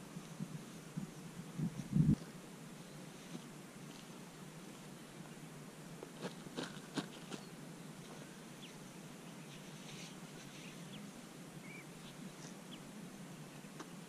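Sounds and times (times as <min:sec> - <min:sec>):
faint bird chirps: 0:07.2 - 0:14.0.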